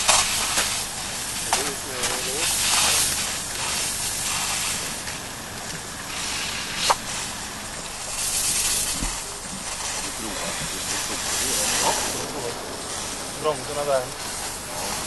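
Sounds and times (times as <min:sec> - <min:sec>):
steam locomotive hissing: 0:00.0 - 0:15.0.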